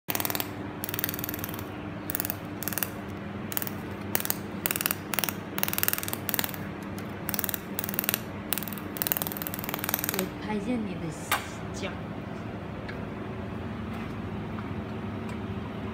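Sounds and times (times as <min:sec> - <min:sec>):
laser welder buzzing bursts: 0:00.1 - 0:10.3
low machine hum: 0:00.1 - 0:15.9.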